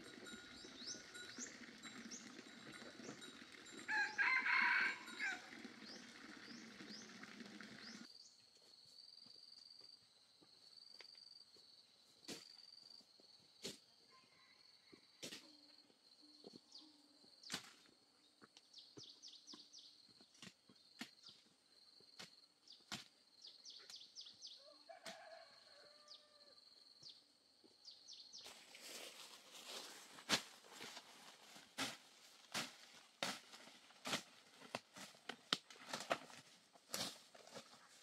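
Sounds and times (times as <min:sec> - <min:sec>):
footsteps through leafy undergrowth: 0:28.4 - 0:38.0.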